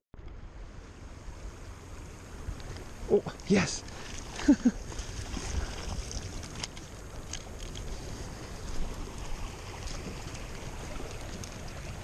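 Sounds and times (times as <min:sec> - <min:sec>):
stream water running: 0:00.3 - 0:12.0
wind on microphone: 0:04.8 - 0:12.0.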